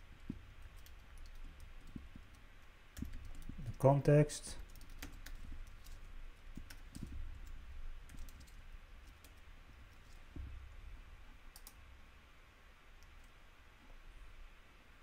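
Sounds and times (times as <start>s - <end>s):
computer keyboard typing: 0.6s - 3.8s, 4.6s - 9.4s, 11.5s - 11.8s.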